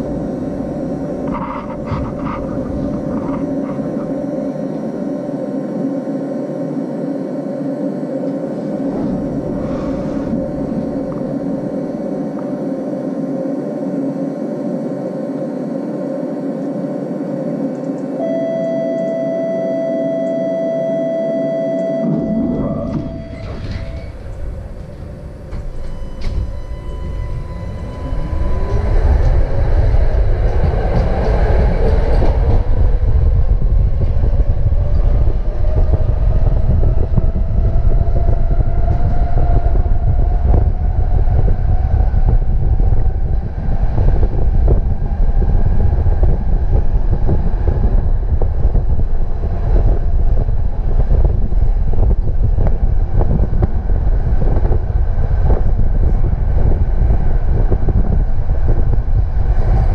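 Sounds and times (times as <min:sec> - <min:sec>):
heavy rumble of running gear: 0:00.0 - 0:05.5, 0:08.1 - 0:15.0, 0:22.1 - 0:59.9
tram motor whine rising: 0:00.0 - 0:59.9.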